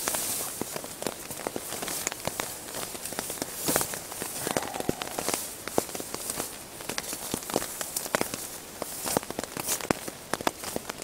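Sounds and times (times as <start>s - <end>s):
ground sheet rustling and crinkling: 0.0s - 11.0s
rain tapping on a tarp: 0.0s - 11.0s.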